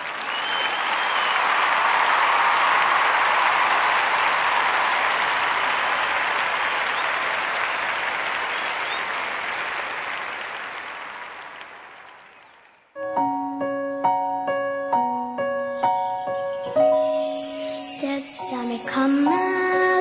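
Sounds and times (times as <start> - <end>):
audience applauding: 0.0 - 12.9.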